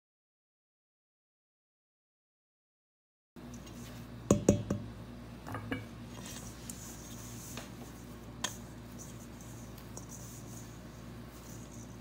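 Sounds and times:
dough squishing and rustling: 3.4 - 4.3, 5.9 - 12.0
spatula knocking metal bowl: 4.3 - 4.9.

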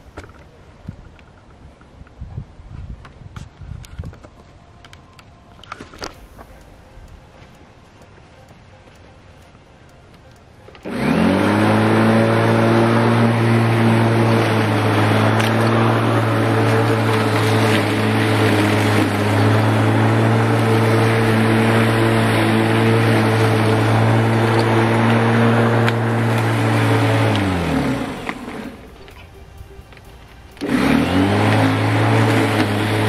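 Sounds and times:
electric lawn mower running: 10.7 - 33.0.

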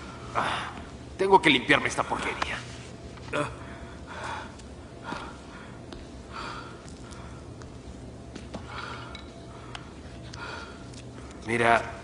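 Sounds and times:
steady low hum: 0.0 - 12.0
man breathing heavily: 3.3 - 11.5.

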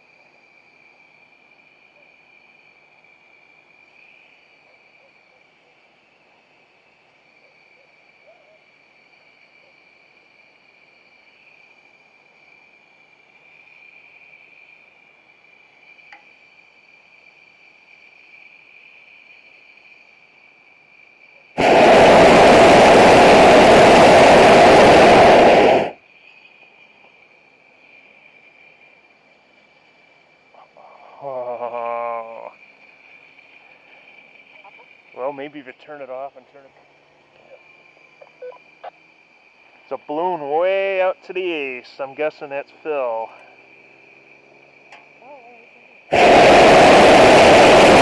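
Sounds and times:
propane burner blast: 21.5 - 26.0, 45.9 - 48.0.

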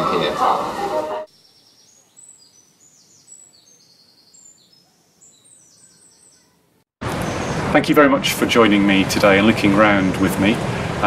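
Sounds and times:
songbird chirping and trilling: 1.3 - 7.6.

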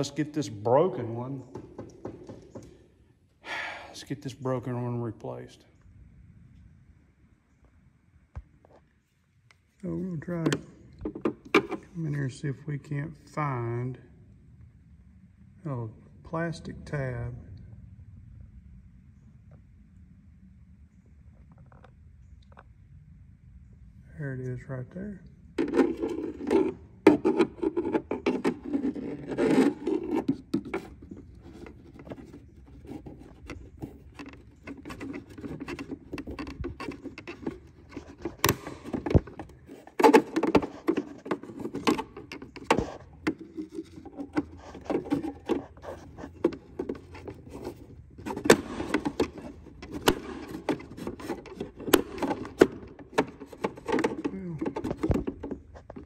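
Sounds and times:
pry tool scraping plastic: 25.6 - 56.0.

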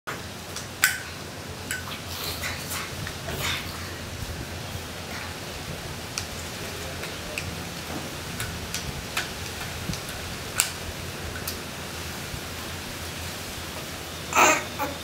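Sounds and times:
steady hiss: 0.1 - 15.0.

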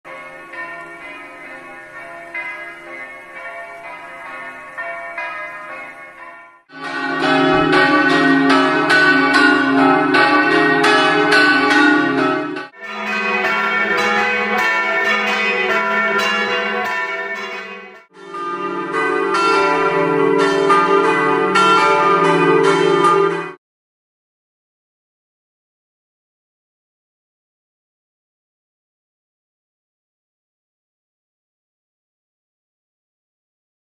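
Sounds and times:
church bells ringing: 0.1 - 23.6.

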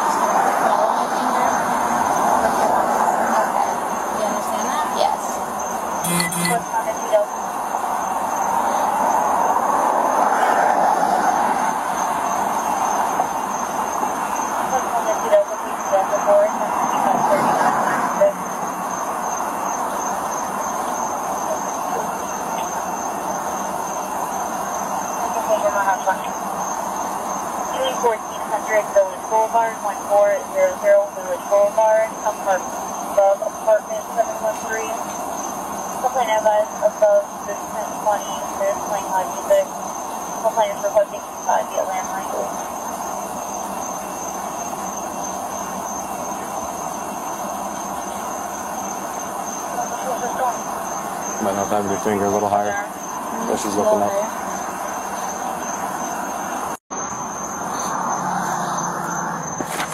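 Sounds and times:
thin high steady tone: 0.0 - 9.1, 11.6 - 59.6
passing traffic: 0.0 - 59.9
thin high tone: 6.0 - 7.3.

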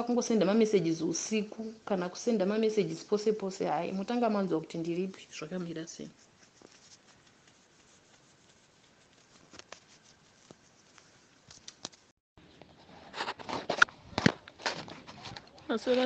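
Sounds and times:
faint room hiss: 0.0 - 12.1
rustling: 3.2 - 16.0.

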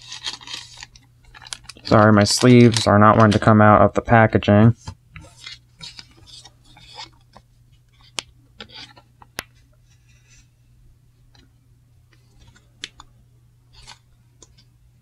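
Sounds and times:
card sleeve rustling and scraping: 0.0 - 3.5, 4.8 - 10.5, 12.2 - 12.7, 13.7 - 14.7
steady low hum: 0.0 - 15.0.

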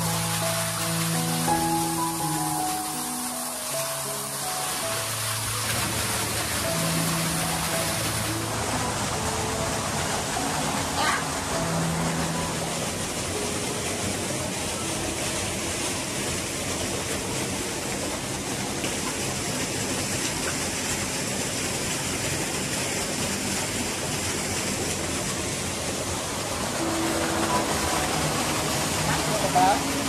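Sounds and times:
flowing water rushing: 0.0 - 30.0.

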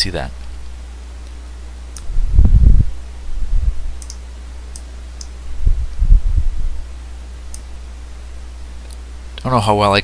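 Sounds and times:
steady low hum: 0.0 - 10.0
computer mouse clicks: 1.2 - 2.1, 4.0 - 5.4, 7.5 - 7.7
dull low thumps: 2.0 - 4.0, 5.4 - 6.9.

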